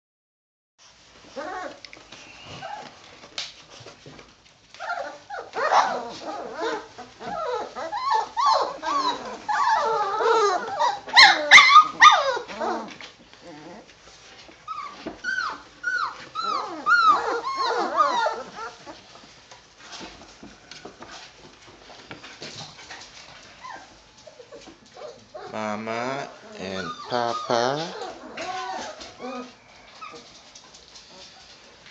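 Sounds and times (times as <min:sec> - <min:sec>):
puppies crying: 0:04.8 - 0:13.9, 0:14.7 - 0:19.2, 0:22.9 - 0:30.4.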